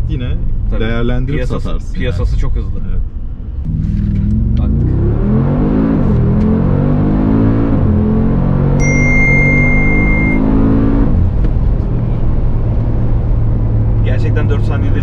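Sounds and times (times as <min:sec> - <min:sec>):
car engine accelerating: 0:03.4 - 0:15.0
steady high beep: 0:08.8 - 0:10.5.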